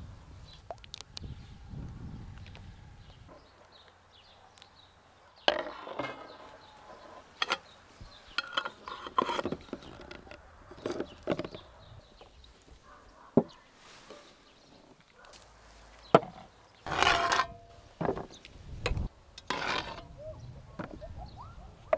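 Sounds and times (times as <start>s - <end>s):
metal screw lids clicking: 5.5s - 11.6s.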